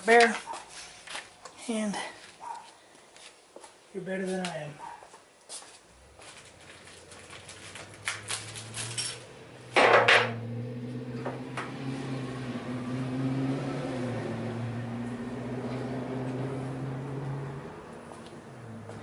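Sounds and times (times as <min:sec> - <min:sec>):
metal engine parts clinking: 0:08.7 - 0:10.3.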